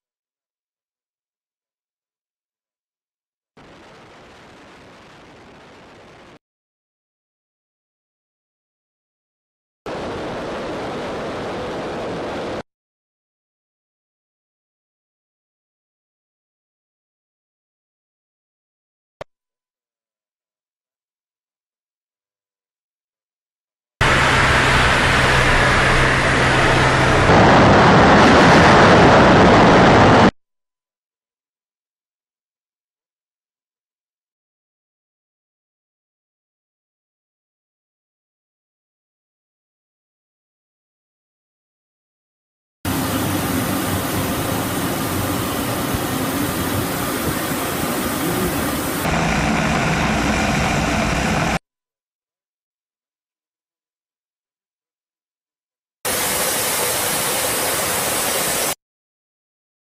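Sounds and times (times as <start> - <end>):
jet engine and airflow in cockpit: 9.9 - 12.7, 24.0 - 30.4, 42.9 - 51.6, 56.1 - 58.8
airflow noise outside fuselage: 24.0 - 30.3, 42.9 - 51.6.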